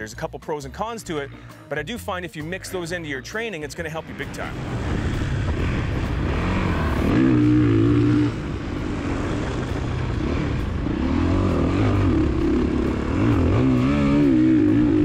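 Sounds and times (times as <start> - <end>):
dirt bike engine revving: 3.8 - 15.0.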